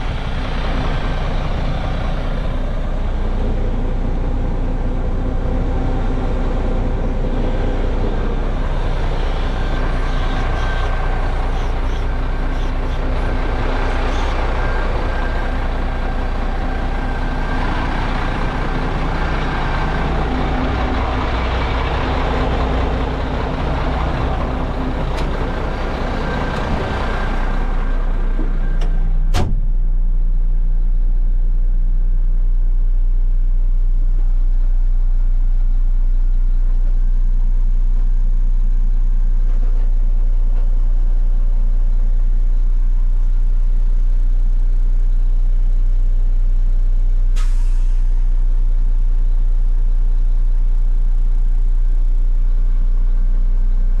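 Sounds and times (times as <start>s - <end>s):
diesel truck engine idling: 0.0s - 54.0s
cab door shutting: 28.4s - 29.7s
brief hiss: 47.4s - 48.2s.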